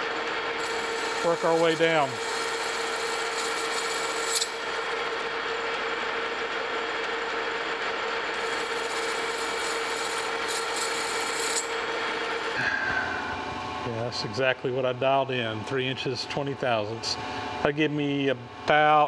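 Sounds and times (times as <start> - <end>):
metal lathe humming: 0.0 - 13.9
cutting tool scratchy hiss: 0.6 - 5.3, 8.4 - 12.6.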